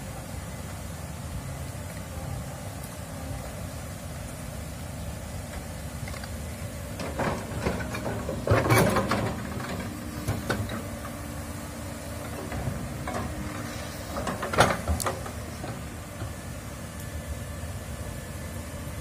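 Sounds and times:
excavator diesel engine running: 0.0 - 19.0
excavator bucket clanking and scraping: 6.9 - 16.4.

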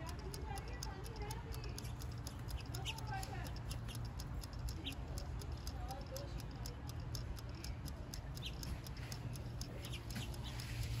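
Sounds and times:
faint evenly spaced ticks: 0.0 - 11.0
steady low hum: 0.0 - 11.0.

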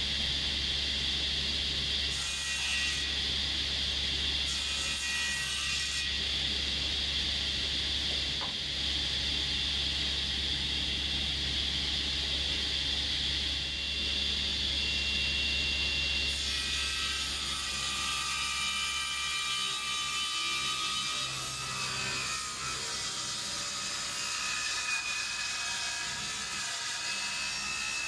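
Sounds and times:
high machine whine: 0.0 - 2.2, 6.0 - 17.5
woodworking machine motor hum: 0.0 - 18.4.

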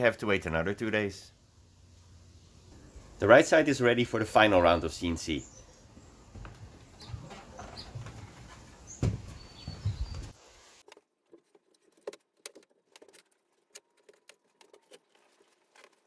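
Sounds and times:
wooden board being handled: 6.4 - 16.0.

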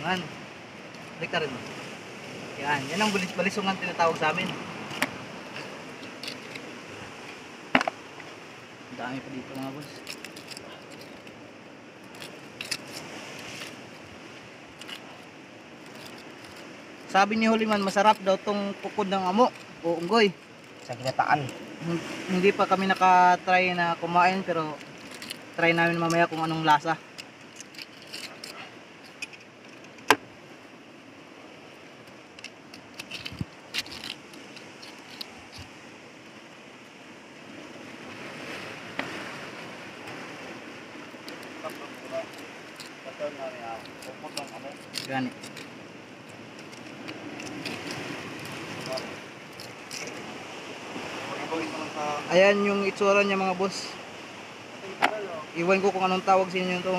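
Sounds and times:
steady hiss: 0.0 - 56.9
knife scraping against rock: 4.4 - 6.8, 9.8 - 11.4, 12.1 - 14.0, 14.7 - 18.0, 24.8 - 30.1, 32.4 - 35.8, 41.4 - 50.3.

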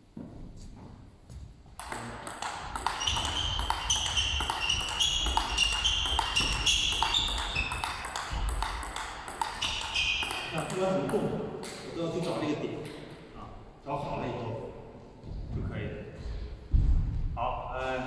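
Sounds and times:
table tennis ball clicking: 1.8 - 11.8.

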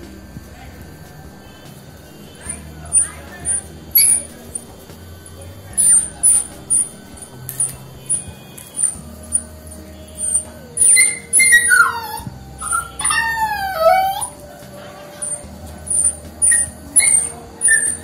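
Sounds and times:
puppy whimpering: 2.4 - 4.7, 10.1 - 18.0.

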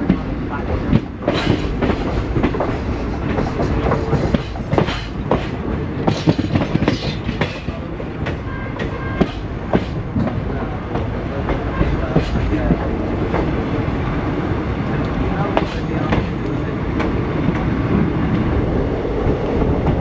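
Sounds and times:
train rumbling: 0.0 - 20.0.

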